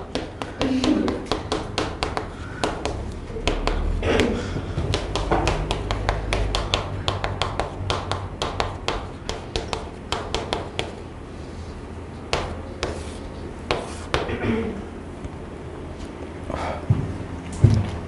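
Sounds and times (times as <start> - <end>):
chalk tapping on a chalkboard: 0.0 - 11.0, 12.3 - 14.4.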